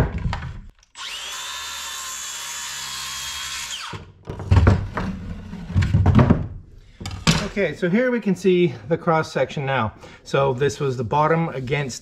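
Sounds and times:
circular saw cutting wood: 1.0 - 4.0
knocks and thumps on workbench: 4.3 - 7.5.

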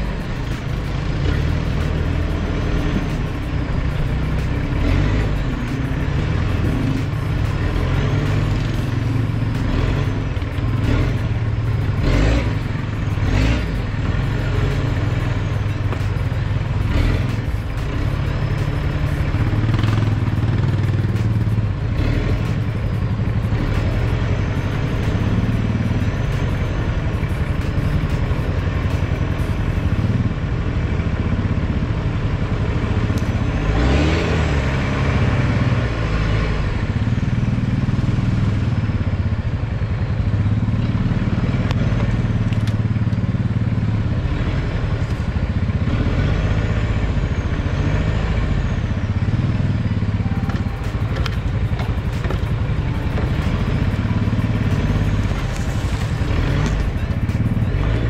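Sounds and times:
diesel engine low drone: 0.0 - 58.0
truck knocks and clatters: 50.4 - 58.0.

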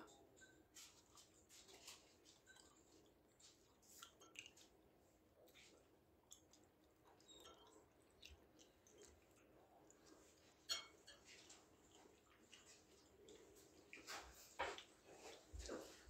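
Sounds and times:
quiet chewing: 0.0 - 16.0
metal fork scraping ceramic bowl: 10.6 - 11.4.

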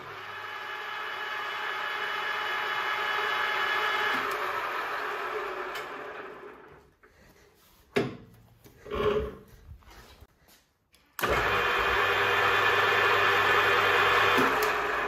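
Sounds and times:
metal lathe whining: 0.0 - 6.8, 11.2 - 15.0.

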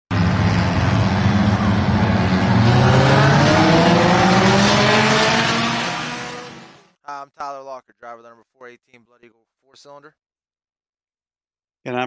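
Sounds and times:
race car engines accelerating: 0.1 - 6.9.

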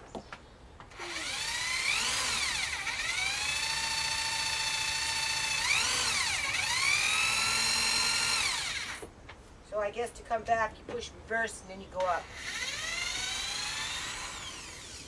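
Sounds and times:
electric drill boring into wood: 0.9 - 9.1, 12.0 - 15.0.

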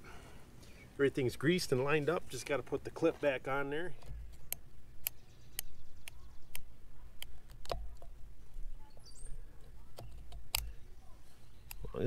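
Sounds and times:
sharp metal clicks and taps: 4.0 - 8.2, 9.6 - 10.8.

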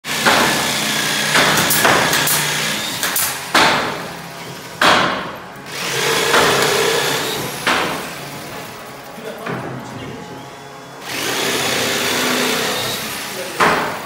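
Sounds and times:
power tool running on wood: 0.1 - 4.8, 5.6 - 9.4, 10.0 - 14.0
hammer knocks on wood: 13.6 - 14.0.

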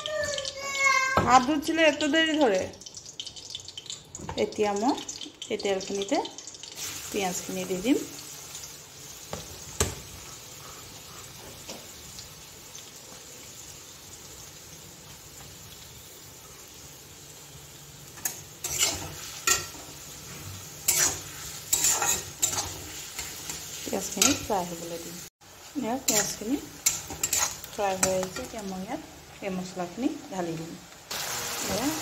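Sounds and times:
onions sizzling in oil: 0.0 - 32.0
metal spatula scraping pan: 18.2 - 24.5, 26.1 - 28.5.

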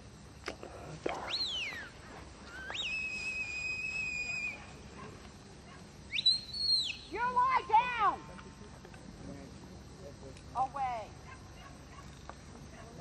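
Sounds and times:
herding whistle: 2.5 - 4.7, 6.1 - 7.1.

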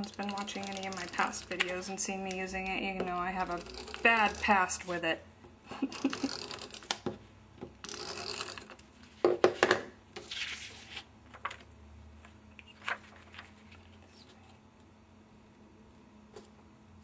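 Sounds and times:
paper rustling and sliding: 10.2 - 11.6, 12.7 - 14.4.

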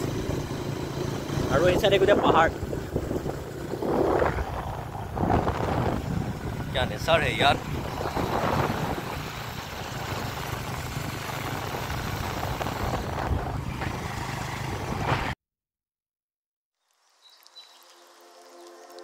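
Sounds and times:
motorbike engine running: 0.0 - 15.4
wind rushing over microphone: 1.3 - 15.4
soft music: 17.4 - 19.0.

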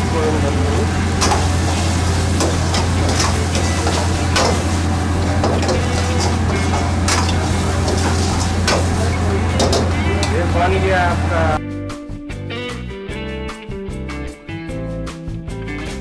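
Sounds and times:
low hum: 0.0 - 11.6
metal ladle scraping a wok: 1.1 - 10.0.

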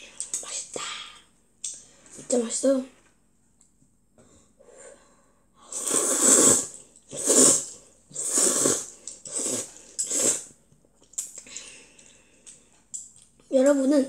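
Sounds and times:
child slurping noodles: 5.6 - 10.6
mouth smacks and clicks: 11.0 - 11.5.

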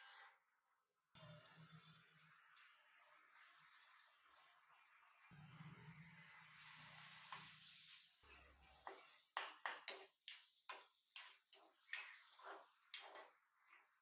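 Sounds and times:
vegetables sizzling in a pan: 6.2 - 13.4
spoon scraping a pan: 7.0 - 13.9.

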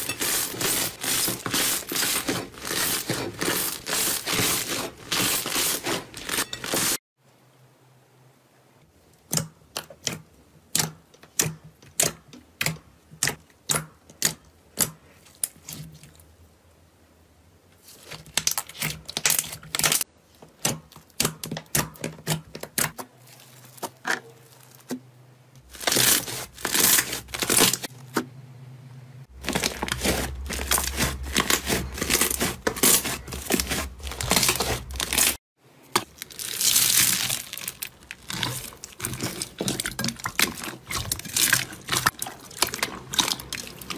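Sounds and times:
slime with beads crunching: 0.0 - 7.0, 25.6 - 27.9, 29.3 - 35.4, 36.0 - 43.9.

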